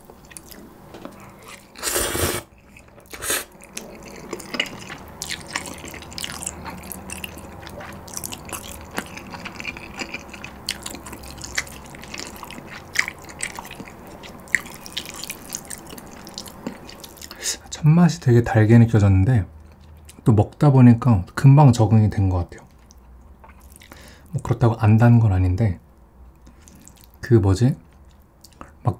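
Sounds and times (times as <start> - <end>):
wet chewing: 0.2 - 17.4, 22.6 - 24.1, 26.4 - 27.2
noodles being slurped: 1.1 - 17.4.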